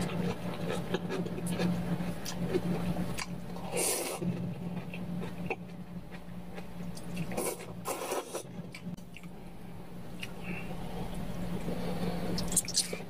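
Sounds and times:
steady low hum: 0:00.0 - 0:13.0
person slurping noodles: 0:07.3 - 0:08.5.

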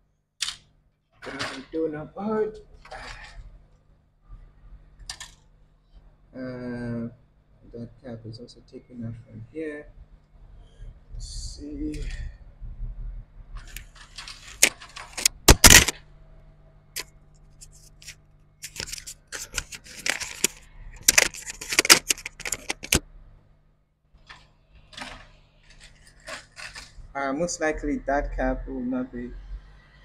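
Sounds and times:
tools and circuit boards clattering: 0:13.6 - 0:16.0, 0:18.6 - 0:23.0.

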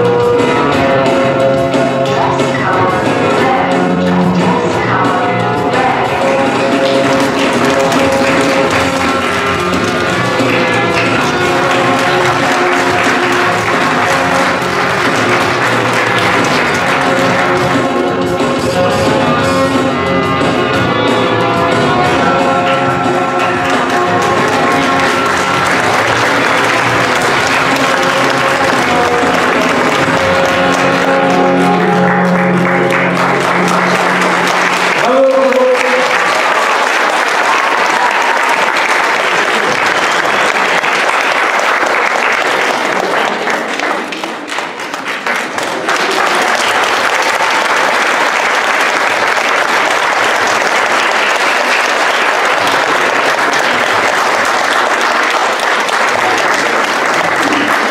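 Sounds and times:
dance music: 0:00.0 - 0:43.8, 0:46.0 - 0:57.9
audience applauding: 0:05.7 - 0:18.4, 0:20.6 - 0:57.9.

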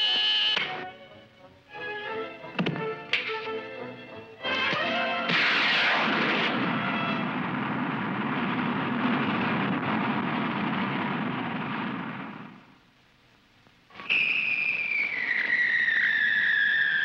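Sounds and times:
cartoon rocket rushing noise: 0:05.3 - 0:07.4, 0:14.1 - 0:17.0.

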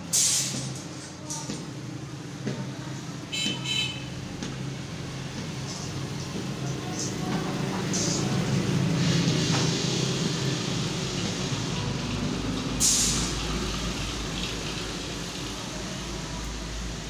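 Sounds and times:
sharp rustling hiss: 0:00.1 - 0:01.0, 0:12.4 - 0:15.6.

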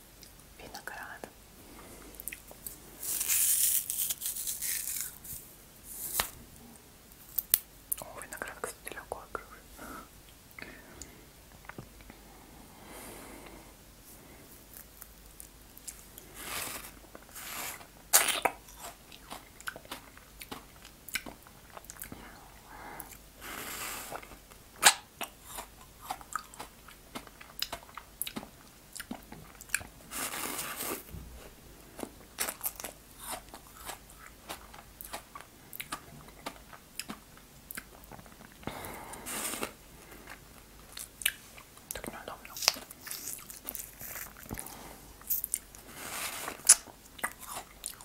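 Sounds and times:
crunching frozen ice: 0:03.0 - 0:05.4.

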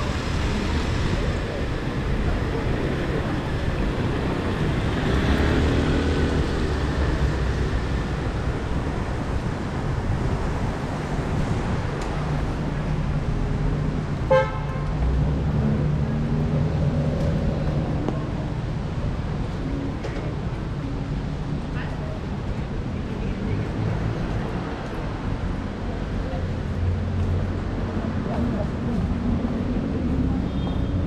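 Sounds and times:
city traffic rumble: 0:00.0 - 0:31.0
vehicle horn toot: 0:14.3 - 0:14.8.

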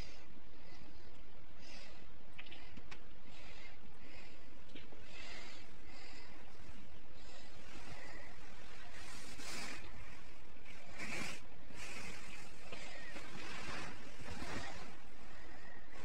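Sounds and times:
cat rustling and scratching blanket: 0:05.0 - 0:16.0.

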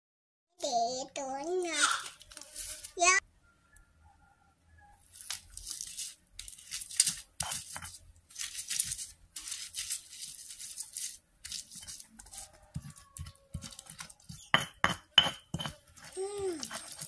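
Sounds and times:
stone pestle grinding in mortar: 0:05.8 - 0:17.0.

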